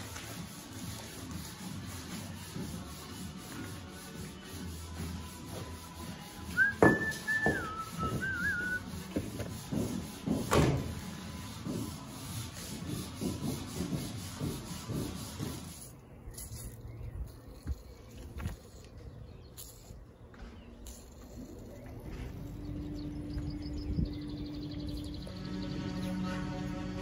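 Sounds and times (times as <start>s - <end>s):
towel rubbing on metal bar: 0.0s - 16.8s
person whistling: 6.5s - 8.9s.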